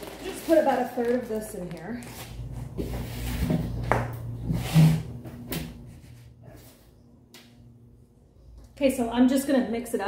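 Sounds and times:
plastic bag rustling: 0.0s - 3.6s.

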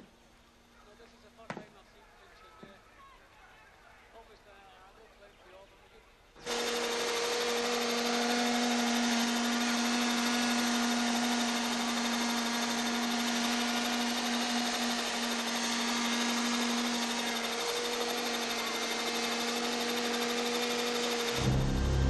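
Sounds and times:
model helicopter engine whine: 6.4s - 22.0s.

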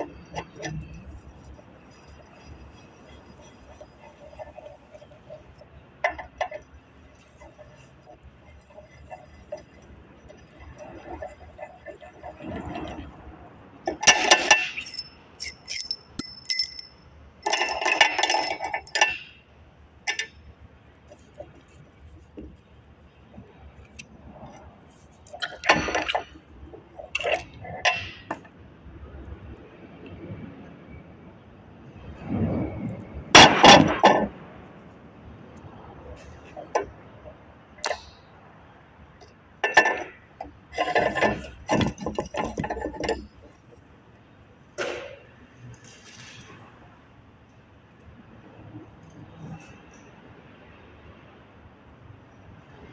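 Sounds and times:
metal tools clinking: 13.8s - 19.4s
steel parts clinking and clattering: 13.8s - 22.6s, 23.8s - 28.5s, 39.2s - 43.8s
metal-on-metal knocks and rattles: 39.6s - 43.8s.

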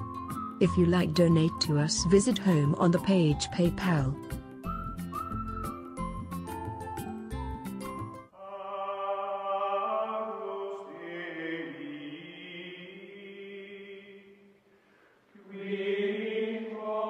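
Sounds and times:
voices chanting long held notes: 15.4s - 17.0s.

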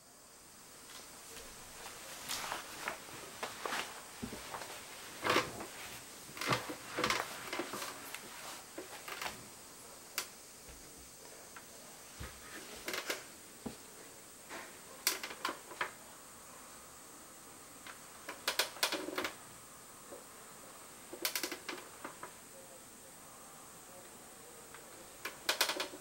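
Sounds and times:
office chair creaking and clicking: 1.8s - 9.5s, 12.2s - 13.3s, 14.5s - 16.0s, 17.8s - 19.4s, 21.1s - 22.4s, 25.2s - 26.0s.

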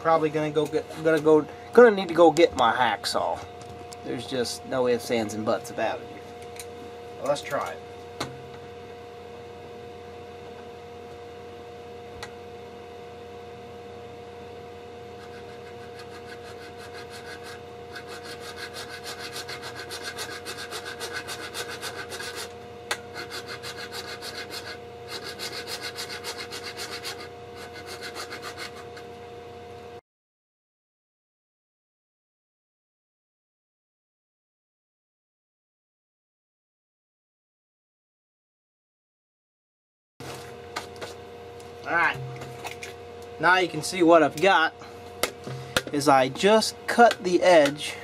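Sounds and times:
steady background hum: 0.0s - 30.0s, 40.2s - 48.0s
hand saw scraping plastic tube: 15.2s - 29.1s.

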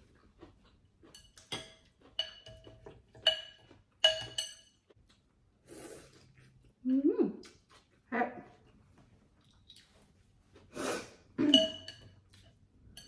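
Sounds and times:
utensils clinking against bowl: 1.0s - 5.0s, 11.4s - 13.0s.

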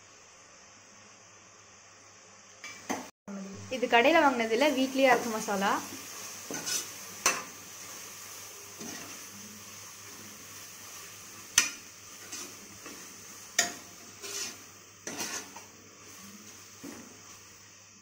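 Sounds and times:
food sizzling: 0.0s - 18.0s
metal spoon scraping pot: 6.5s - 7.4s, 13.6s - 15.6s.

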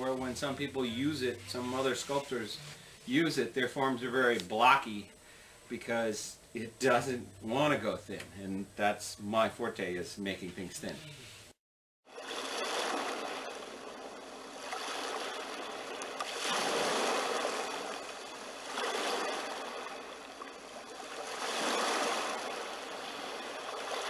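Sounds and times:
ocean surf washing in: 12.1s - 24.0s.

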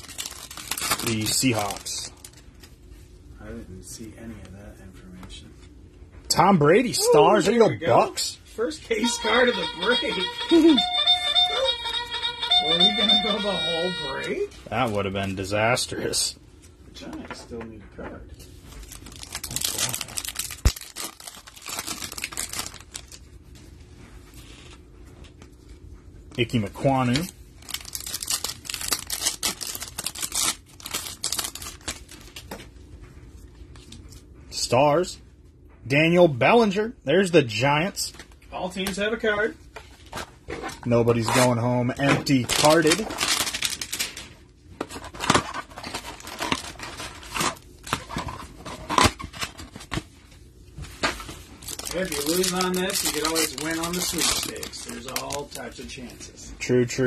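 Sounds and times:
foil wrapper crinkling: 0.0s - 2.8s, 18.7s - 23.3s, 26.4s - 32.5s, 42.2s - 44.4s, 45.0s - 50.0s, 51.4s - 55.8s
handling of cards: 27.0s - 32.7s, 50.8s - 55.8s.

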